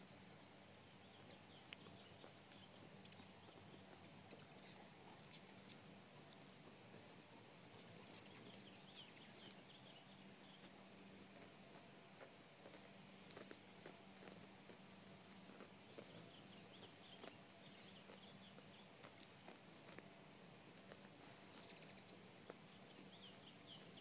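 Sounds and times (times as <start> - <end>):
faint low hum: 0.0 - 24.0
hummingbird chip calls: 1.2 - 5.7, 21.6 - 24.0.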